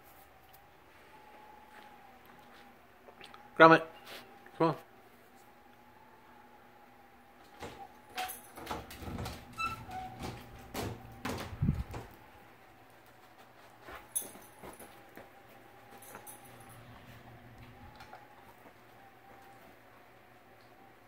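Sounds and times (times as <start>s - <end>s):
faint steady hum: 0.0s - 21.0s
dog knocking and scraping furniture: 8.5s - 12.2s.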